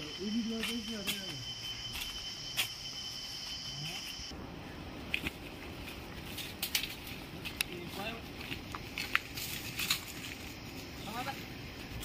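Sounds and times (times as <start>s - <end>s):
footsteps on dry leaves and twigs: 0.0s - 4.3s, 5.1s - 12.0s
high-pitched insect drone: 0.0s - 4.4s.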